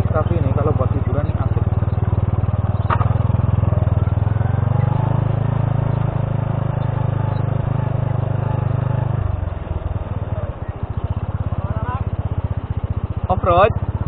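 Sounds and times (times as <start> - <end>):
motorcycle engine running: 0.0 - 14.0.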